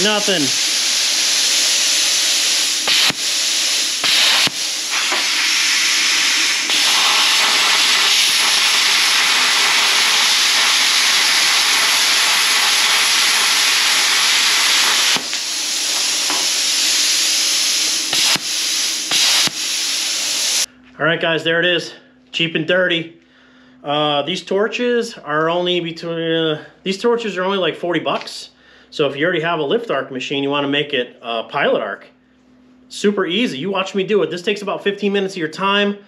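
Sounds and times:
plasma cutter hissing: 0.0 - 20.7.

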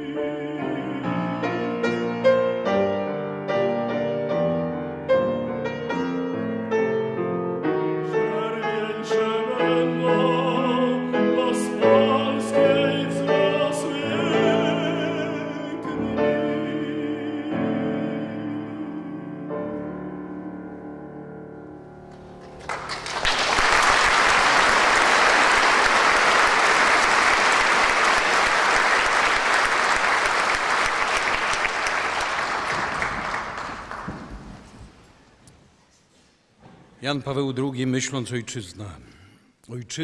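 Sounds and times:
piano chords: 0.0 - 23.3
audience applause: 22.4 - 34.8.

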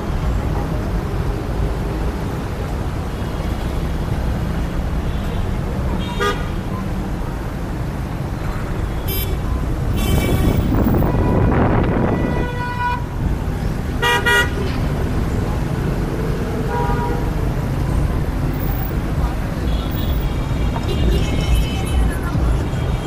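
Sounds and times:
low rumble of engines: 0.0 - 23.0
car horns honking: 4.9 - 6.8, 8.6 - 13.2, 13.9 - 14.9, 16.5 - 17.5, 19.5 - 23.0.

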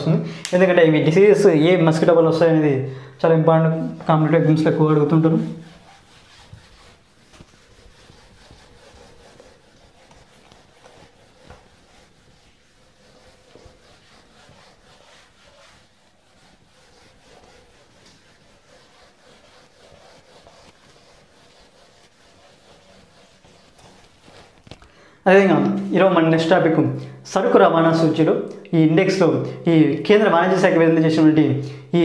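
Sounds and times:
eraser rubbing on whiteboard: 3.3 - 24.8.

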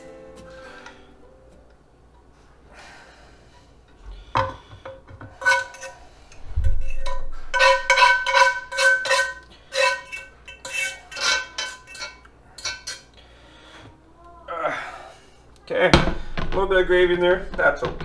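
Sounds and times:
utensil scraping cast iron pan: 4.7 - 13.1.

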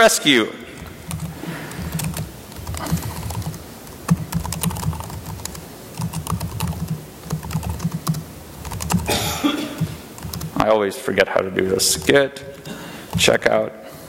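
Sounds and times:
laptop keyboard typing: 0.8 - 9.2, 9.8 - 10.6, 12.0 - 13.4.

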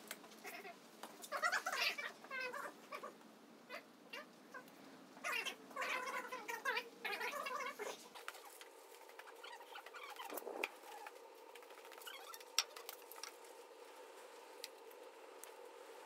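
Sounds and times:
animal crying: 0.4 - 11.2, 11.8 - 12.6.

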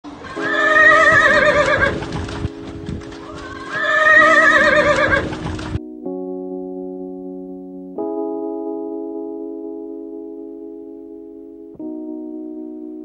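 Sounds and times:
keyboard chord: 0.1 - 13.0
horse whinnying: 0.2 - 2.1, 3.2 - 5.4
hooves thudding in mud: 0.8 - 5.8.

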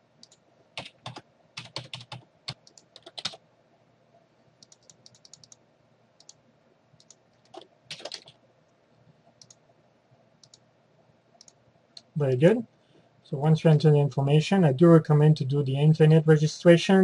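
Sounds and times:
computer keyboard typing: 0.2 - 3.4, 4.6 - 5.6, 6.2 - 6.4, 7.0 - 8.4, 10.4 - 10.6.

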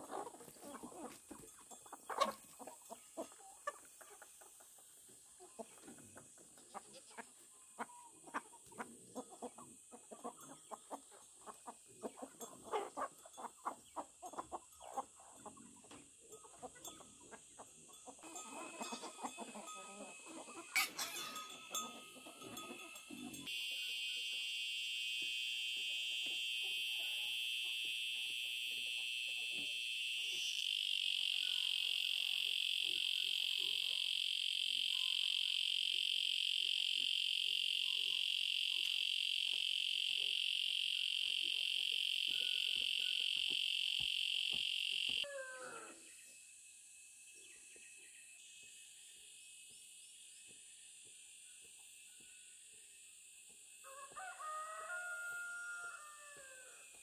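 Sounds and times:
chickens clucking: 0.0 - 24.3
high-pitched chorus of animals calling: 18.2 - 24.0, 30.2 - 46.1.

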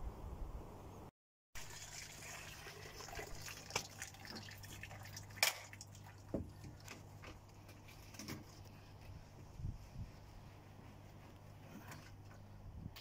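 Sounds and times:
water dripping and trickling: 1.6 - 8.1.

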